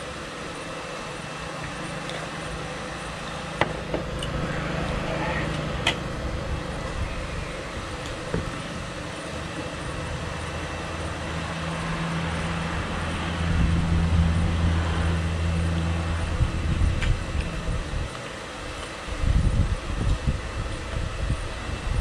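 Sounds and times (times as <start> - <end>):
low engine hum: 0.0 - 22.0.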